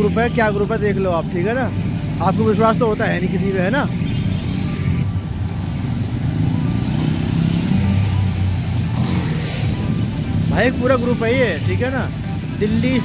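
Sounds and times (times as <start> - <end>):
motorcycle engines droning: 0.0 - 13.0
motorcycle passing close: 6.0 - 13.0.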